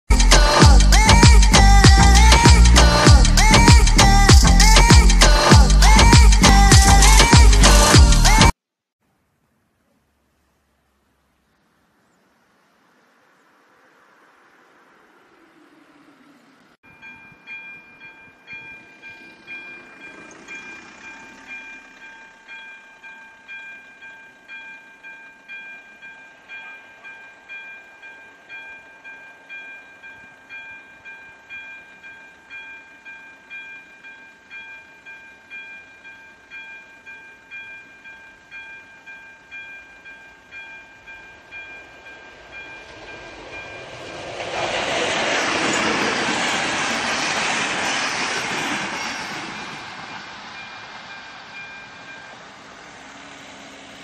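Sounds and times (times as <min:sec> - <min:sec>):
train rumble: 0:00.2 - 0:08.5, 0:14.2 - 0:37.1, 0:38.0 - 0:54.0
level crossing warning bell: 0:16.8 - 0:44.3, 0:50.4 - 0:54.0.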